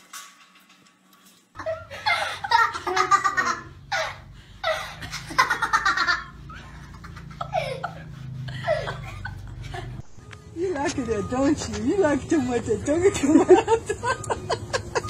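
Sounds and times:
people giggling: 1.6s - 10.0s, 13.0s - 15.0s.

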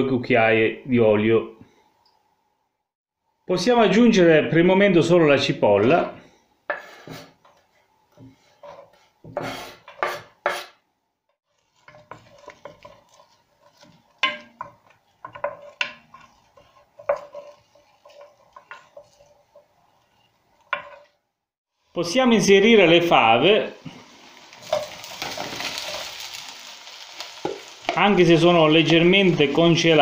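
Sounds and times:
knife scraping cutting board: 6.7s - 7.6s, 8.2s - 10.8s, 11.7s - 21.2s
wooden spoon stirring in pot: 6.7s - 10.6s, 11.5s - 21.3s, 23.8s - 26.5s.

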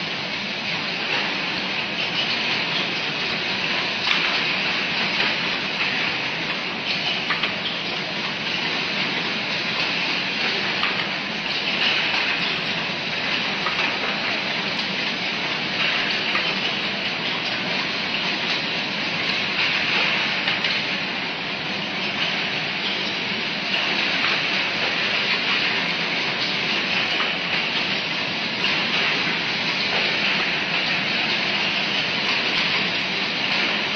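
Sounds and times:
machinery hiss and whirr: 0.0s - 33.9s.

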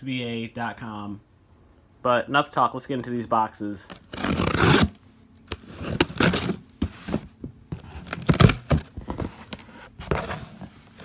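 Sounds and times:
tape and label ripping: 3.9s - 6.6s, 8.0s - 8.8s
cardboard flaps scraping and rustling: 3.9s - 11.0s.

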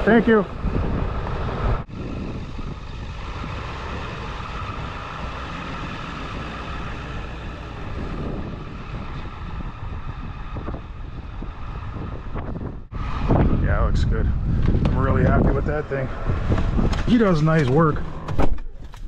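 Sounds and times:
truck engine driving away: 0.0s - 14.8s.

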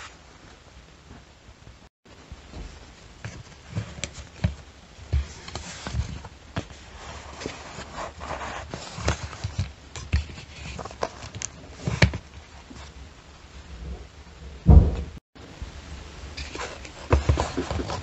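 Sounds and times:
heavy wooden thump: 14.6s - 15.2s.

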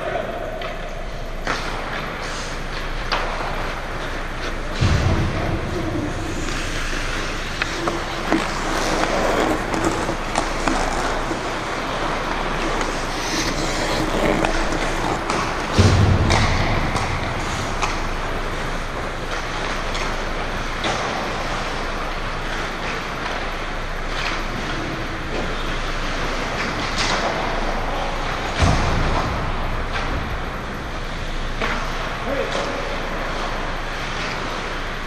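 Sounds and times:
hockey sticks and puck clacking: 0.6s - 5.2s, 5.9s - 29.2s
heavy thumps: 4.7s - 19.0s.

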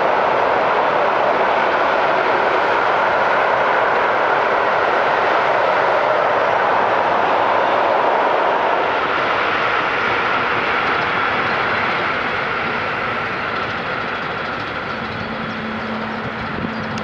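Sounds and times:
ship diesel engine droning: 9.1s - 17.0s.

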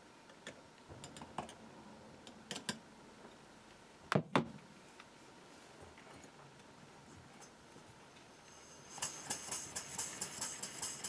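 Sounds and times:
small parts clicking and knocking: 9.0s - 11.0s.

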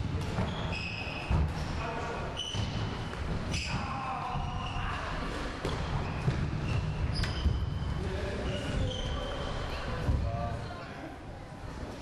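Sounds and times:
shoes squeaking on floor: 0.3s - 1.7s, 2.3s - 5.0s, 5.7s - 9.8s.

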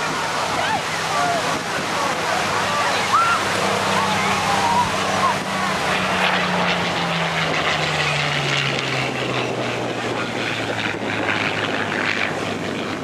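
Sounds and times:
propeller plane engine passing: 0.0s - 13.0s.

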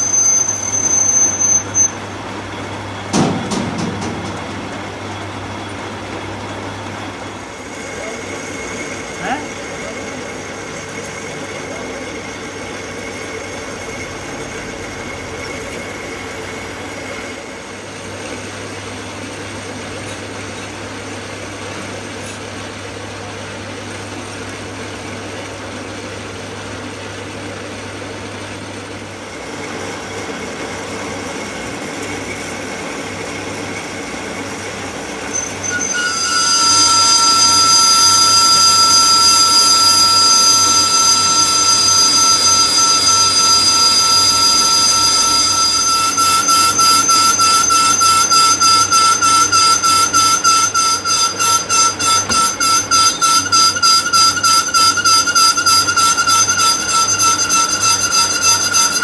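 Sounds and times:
cutting tool squealing: 0.0s - 2.0s, 35.3s - 59.0s
metal lathe whirring: 0.0s - 59.0s.

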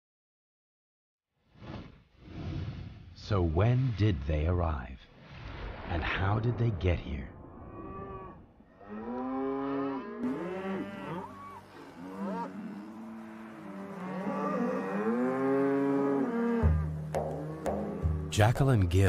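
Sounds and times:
cattle mooing: 7.8s - 18.2s.

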